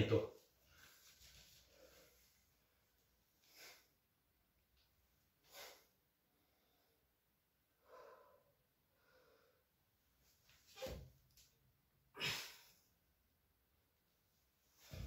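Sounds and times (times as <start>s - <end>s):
faint breaths: 7.8s - 9.8s.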